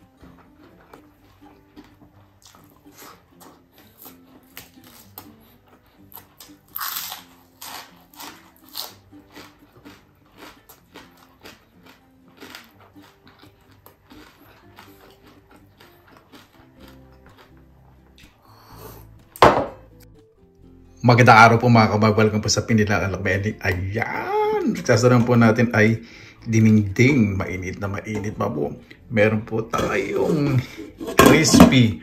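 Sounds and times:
chewing and crunching: 0.0s - 19.2s.

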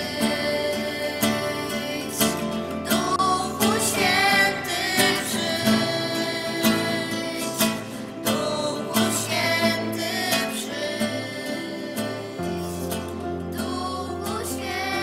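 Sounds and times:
guitar accompaniment: 0.0s - 15.0s
person singing: 0.0s - 15.0s.

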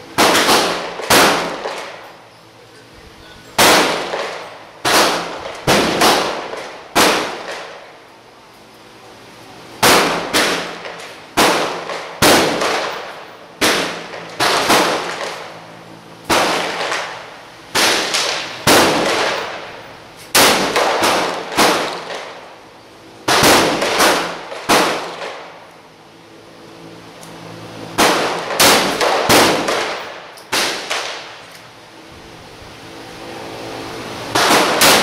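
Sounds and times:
gunshots with ringing echo: 0.2s - 2.0s, 3.6s - 7.8s, 9.8s - 15.5s, 16.3s - 19.8s, 20.4s - 22.4s, 23.3s - 25.5s, 28.0s - 31.3s, 34.4s - 35.0s.

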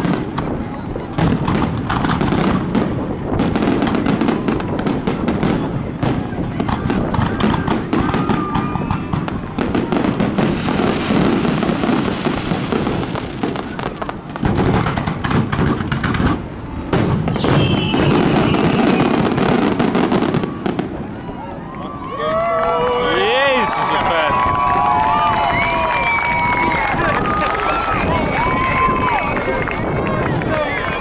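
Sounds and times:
firework shells bursting: 1.2s - 21.0s
firework falling whistle: 17.2s - 20.8s.

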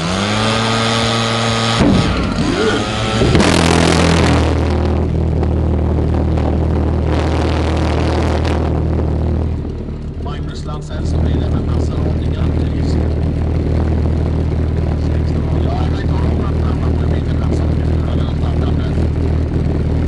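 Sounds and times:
leaf blower: 0.0s - 5.1s, 6.1s - 9.4s
pulse jet engine droning: 0.0s - 20.0s.

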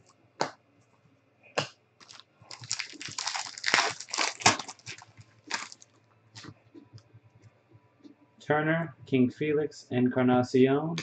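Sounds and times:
foil wrapper crinkling: 2.0s - 6.5s.

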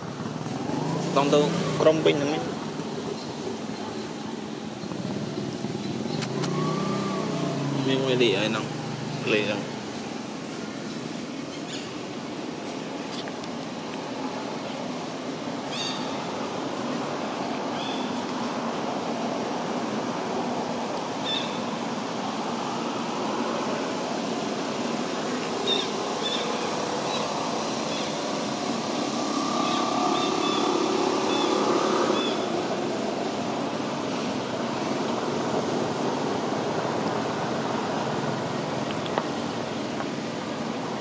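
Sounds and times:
outdoor background noise: 0.0s - 41.0s.

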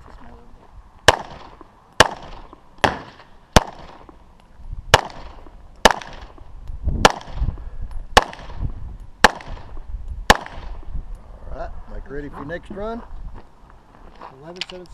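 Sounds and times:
pistol shots with echo: 1.1s - 4.1s, 4.9s - 6.4s, 7.0s - 7.4s, 8.1s - 8.6s, 9.2s - 10.8s.

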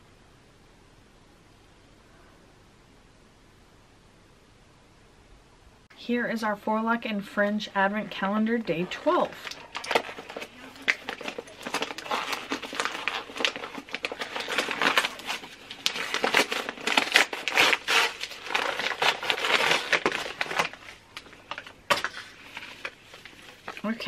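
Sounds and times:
paper tearing and crumpling: 9.2s - 24.0s.

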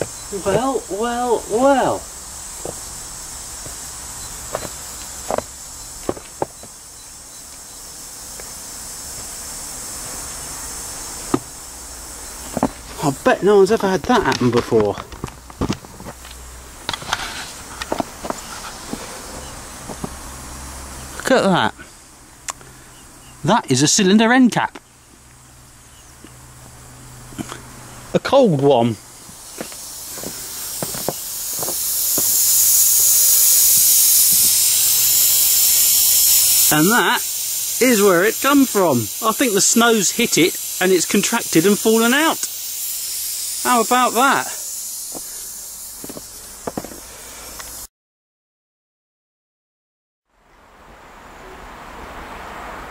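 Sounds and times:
steam locomotive hissing: 0.0s - 14.4s, 16.0s - 22.0s, 26.3s - 47.9s.

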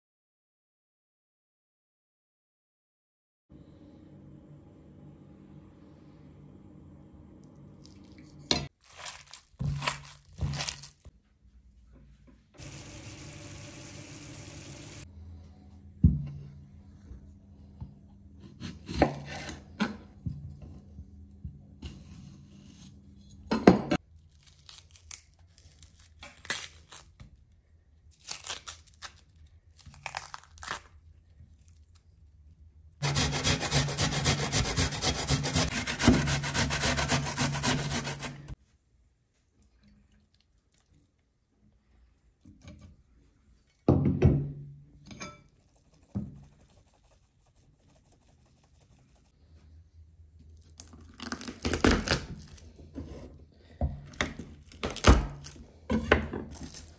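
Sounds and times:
knife cutting garlic: 18.4s - 19.6s, 33.0s - 38.6s
knife slicing onion on board: 18.4s - 20.0s, 33.0s - 38.6s
onion rasping on metal grater: 33.0s - 38.6s.

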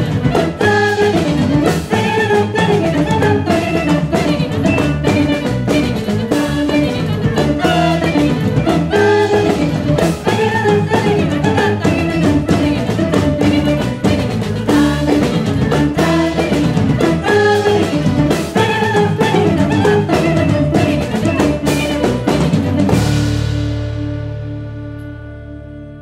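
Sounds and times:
jazz band with singers: 0.0s - 25.2s
final accented band chord: 12.5s - 26.0s.

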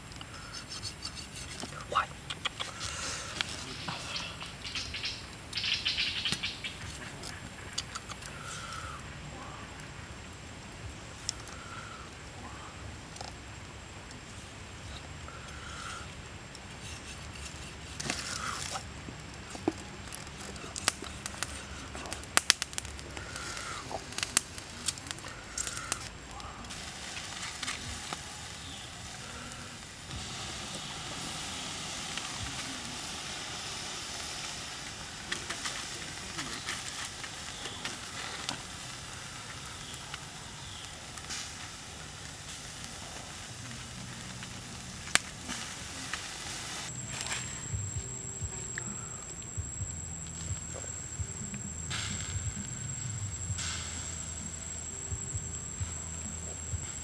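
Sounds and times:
meat crackling and popping over embers: 0.0s - 57.0s
sauce sizzling on hot meat: 26.7s - 47.0s, 51.7s - 55.0s.

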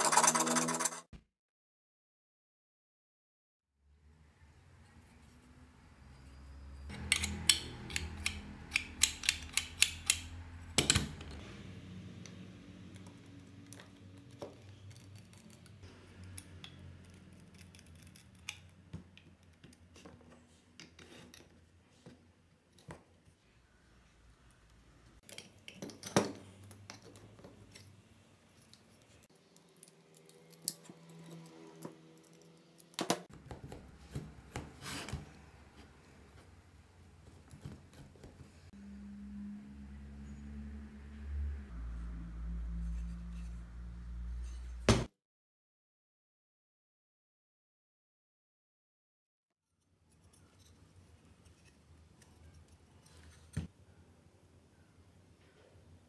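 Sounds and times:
metal parts clicking and knocking: 6.9s - 11.4s.

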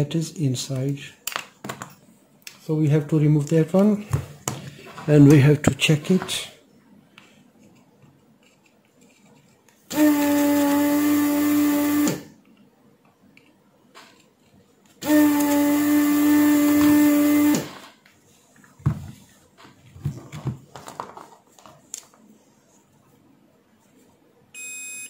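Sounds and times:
desoldering pump humming and hissing: 9.9s - 12.4s, 15.0s - 17.8s.

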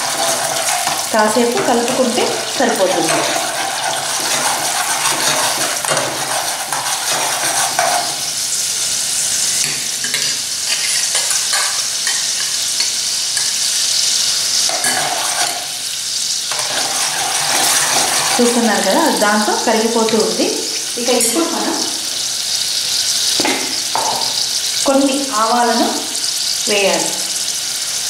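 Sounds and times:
steel spoon scraping a pot: 0.0s - 8.4s, 9.6s - 13.6s, 14.6s - 15.8s, 16.5s - 18.9s
cream sizzling in hot oil: 0.0s - 28.0s.

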